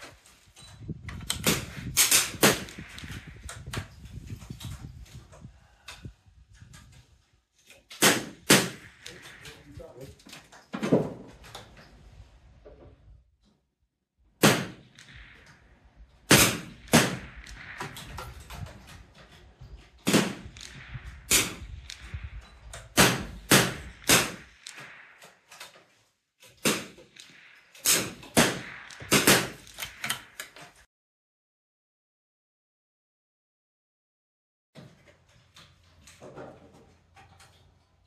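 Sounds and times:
rifle gunshots: 0:01.4 - 0:03.7, 0:08.0 - 0:09.8, 0:14.4 - 0:25.6, 0:26.6 - 0:30.5.

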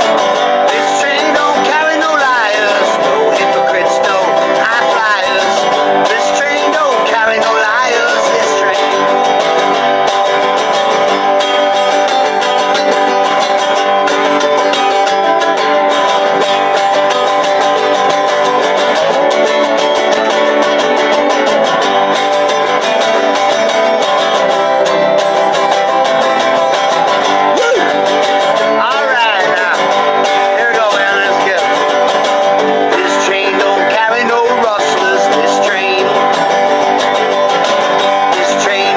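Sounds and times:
banjo picking quick notes: 0:00.0 - 0:33.8
strummed resonator guitar: 0:00.0 - 0:38.9.

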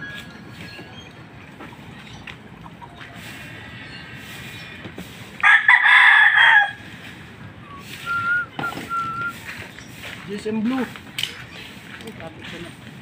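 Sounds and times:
rooster crowing: 0:05.4 - 0:06.8
faint short high whistles: 0:07.6 - 0:09.5.

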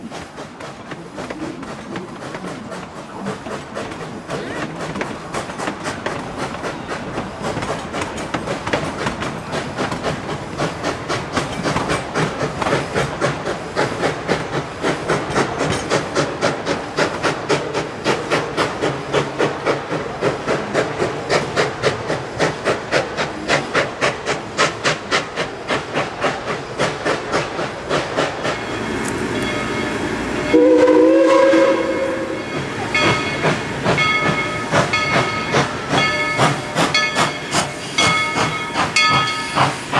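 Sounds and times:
steam hissing: 0:00.0 - 0:39.9
steam locomotive chuffing: 0:00.0 - 0:39.9
train whistle blast: 0:30.5 - 0:32.6.

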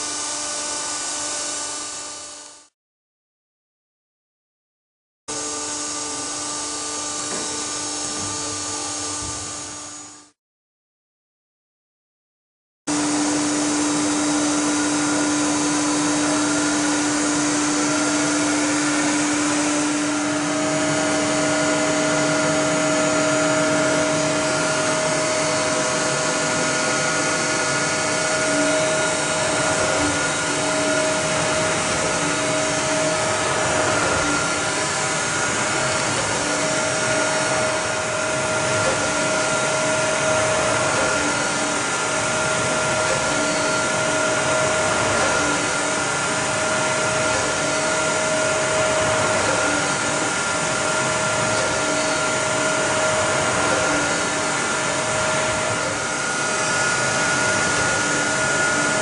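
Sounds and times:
grinding machine whirring: 0:12.9 - 0:59.0
steady machine tones: 0:12.9 - 0:59.0.

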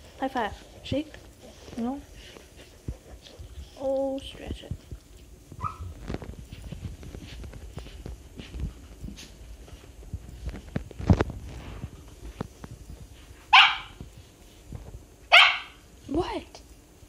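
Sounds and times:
small dog barking: 0:05.6 - 0:05.9, 0:13.5 - 0:14.0, 0:15.3 - 0:15.8.

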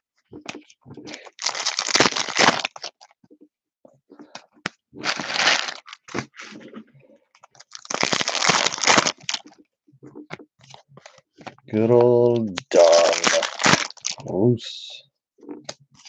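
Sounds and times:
foil wrappers tearing and crinkling: 0:01.1 - 0:03.0, 0:05.0 - 0:06.5, 0:07.6 - 0:09.5, 0:12.6 - 0:14.2.

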